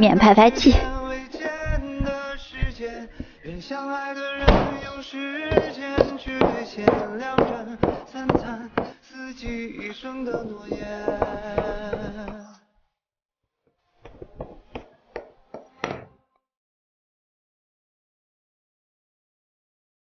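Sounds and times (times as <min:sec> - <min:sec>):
song with singing: 0:00.0 - 0:12.7
beat of sharp knocks: 0:01.4 - 0:03.4, 0:04.4 - 0:12.4.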